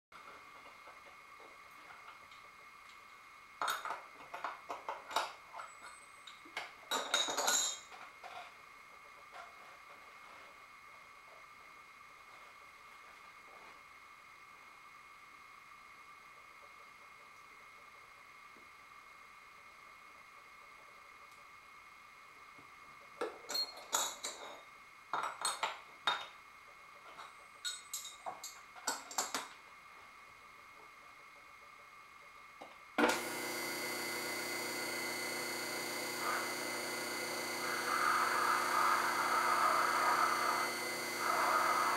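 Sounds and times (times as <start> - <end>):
faint steady whine: 0.2 - 41.9
metal chips and tools clinking: 27.6 - 29.4.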